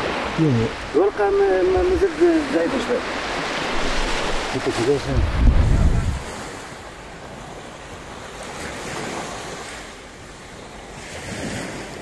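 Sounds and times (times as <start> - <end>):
wind buffeting microphone: 0.0 - 7.6
waves breaking on sandy beach: 0.0 - 12.0.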